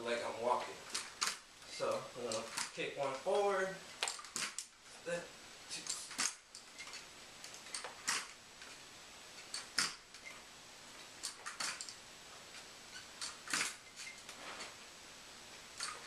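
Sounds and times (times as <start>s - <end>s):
walker and leg braces clacking: 0.5s - 4.8s, 5.7s - 8.8s, 9.4s - 14.8s, 15.8s - 16.0s.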